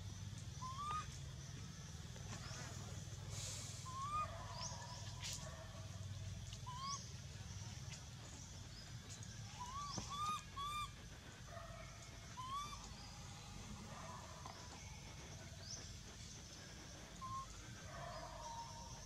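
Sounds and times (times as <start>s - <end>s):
baby monkey crying coos: 9.6s - 10.9s, 12.4s - 12.8s.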